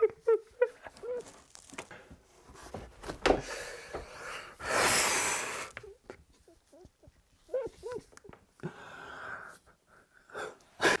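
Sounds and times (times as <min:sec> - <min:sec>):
man breathing heavily: 0:03.4 - 0:05.8.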